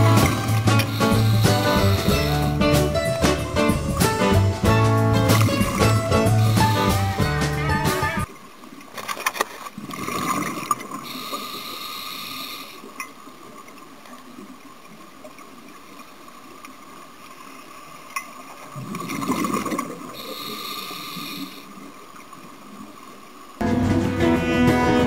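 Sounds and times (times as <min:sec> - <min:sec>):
regulator breathing bubbles: 0:00.0 - 0:04.0, 0:05.2 - 0:07.2, 0:10.0 - 0:12.9, 0:20.1 - 0:21.7.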